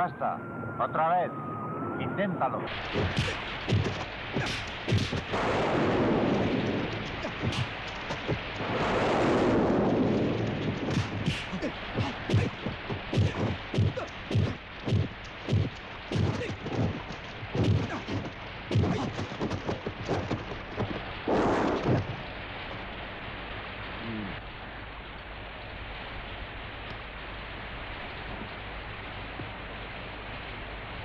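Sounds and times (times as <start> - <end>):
steady hiss: 2.7 - 31.0
punch and block impacts: 2.9 - 8.4, 10.9 - 22.1.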